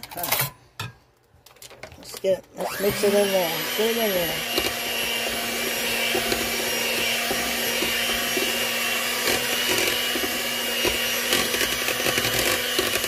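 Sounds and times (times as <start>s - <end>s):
beaters clicking and scraping bowl: 1.5s - 13.0s
electric hand mixer running: 2.6s - 13.0s.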